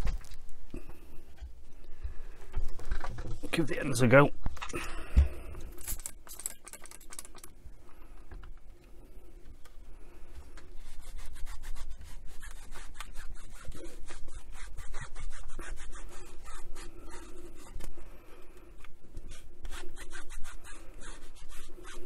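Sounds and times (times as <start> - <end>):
cloth scrubbing a radio case: 10.7 - 17.9.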